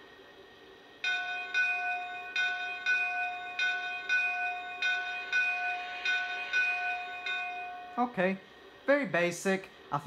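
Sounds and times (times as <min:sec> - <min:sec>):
locomotive bell ringing: 0:01.0 - 0:08.5.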